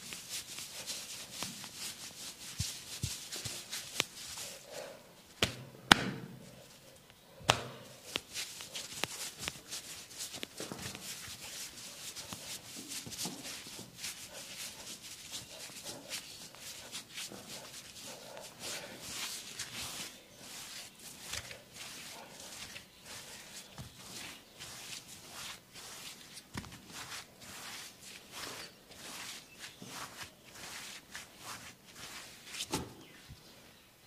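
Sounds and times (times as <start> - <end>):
rustling: 0.0 - 5.6, 6.4 - 33.6
hand slaps on the body: 5.4 - 6.3, 7.5 - 7.8.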